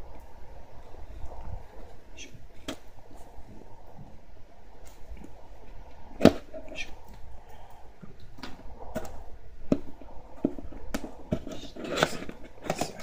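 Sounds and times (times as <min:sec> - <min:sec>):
blade scraping cardboard: 0:08.4 - 0:13.0.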